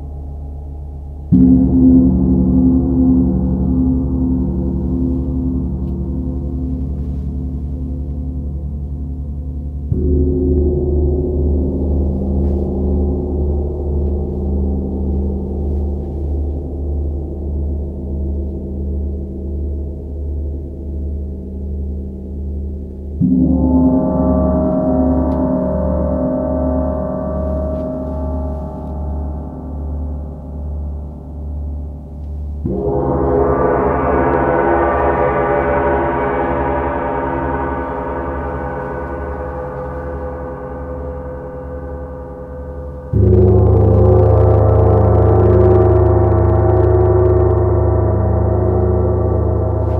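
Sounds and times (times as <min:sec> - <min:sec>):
gongs ringing: 0:32.6 - 0:49.9.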